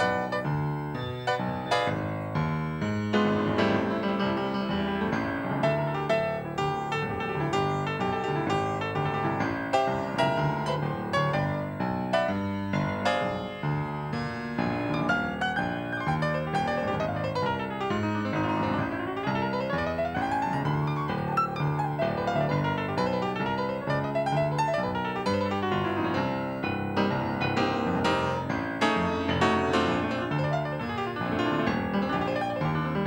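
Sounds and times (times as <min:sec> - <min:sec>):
solo jazz piano: 0:00.0 - 0:33.0.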